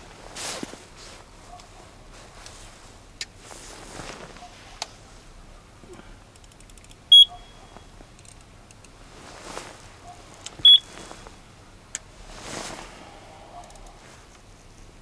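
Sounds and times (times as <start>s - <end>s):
electronic bite alarm beeps: 7.1s - 7.8s, 10.6s - 10.9s.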